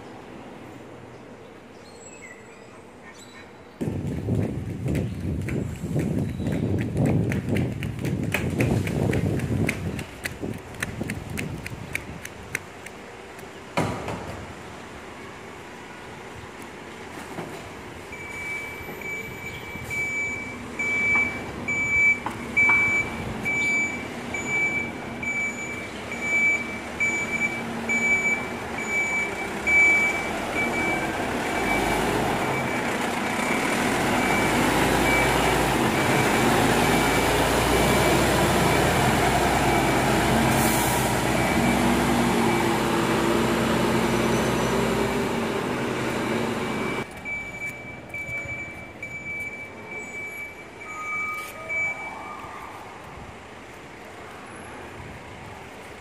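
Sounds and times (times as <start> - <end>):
diesel truck engine running: 17.8 - 50.5
truck warning beeper: 18.1 - 40.4, 41.1 - 45.5, 46.2 - 52.3.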